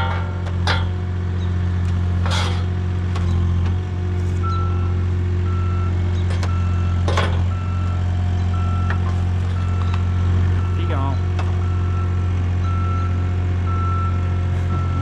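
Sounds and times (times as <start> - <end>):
loader engine running: 0.0 - 15.0
warning beeper: 10.6 - 12.1.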